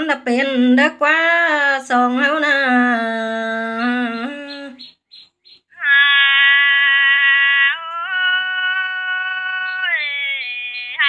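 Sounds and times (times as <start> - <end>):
woman singing through a phone: 0.0 - 4.9.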